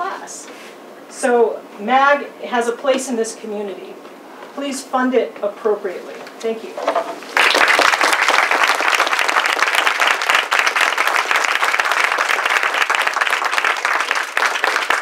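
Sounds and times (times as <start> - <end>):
audience applauding: 7.3 - 15.0.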